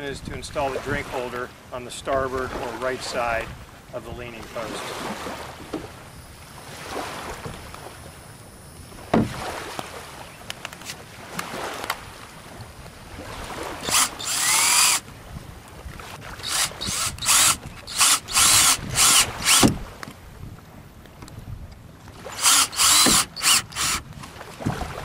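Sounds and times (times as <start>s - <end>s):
power drill running: 13.8s - 15.0s, 16.4s - 19.7s, 22.3s - 24.0s.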